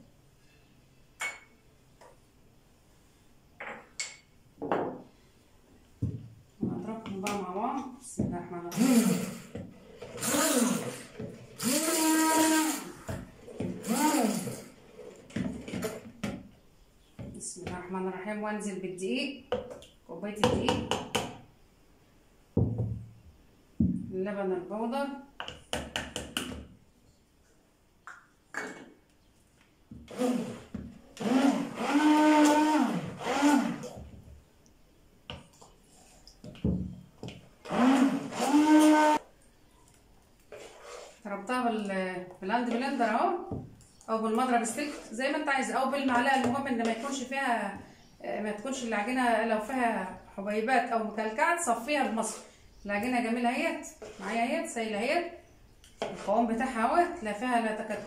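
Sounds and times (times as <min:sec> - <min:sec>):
immersion blender whirring: 0:08.7 - 0:14.7, 0:30.1 - 0:34.0, 0:37.6 - 0:39.2.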